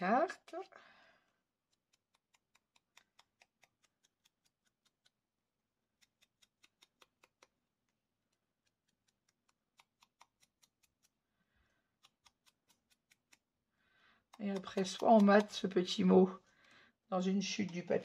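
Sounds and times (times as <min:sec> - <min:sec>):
ink dauber dabbing paper: 0:14.3 - 0:16.1, 0:17.2 - 0:18.0.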